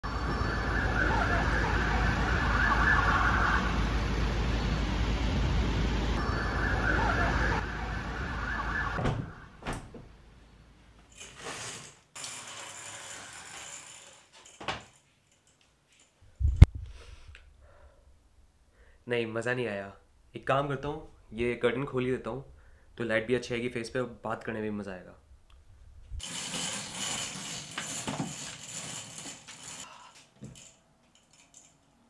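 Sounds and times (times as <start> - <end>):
emergency siren wailing: 0.0 - 9.6
street rumble: 0.1 - 10.4.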